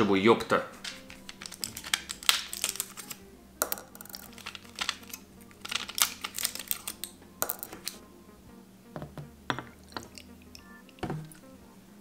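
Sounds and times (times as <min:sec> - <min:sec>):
blister pack crackling: 0:00.7 - 0:08.0.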